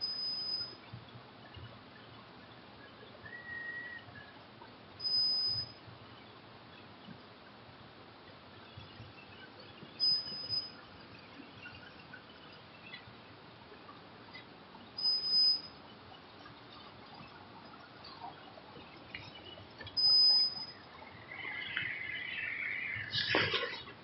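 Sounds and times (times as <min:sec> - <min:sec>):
high-pitched beeps: 0:00.0 - 0:00.8, 0:05.0 - 0:05.8, 0:10.0 - 0:10.8, 0:15.0 - 0:15.8, 0:19.9 - 0:23.6
faint background noise: 0:00.0 - 0:24.0.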